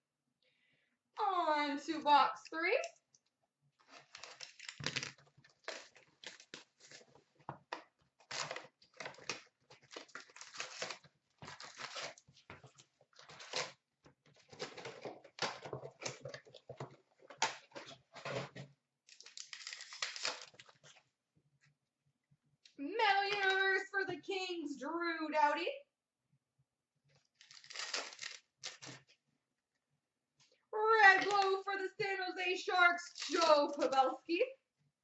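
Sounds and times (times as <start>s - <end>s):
cardboard and wrappers crinkling: 3.8s - 21.1s, 27.2s - 29.1s, 31.0s - 31.6s, 32.8s - 34.2s.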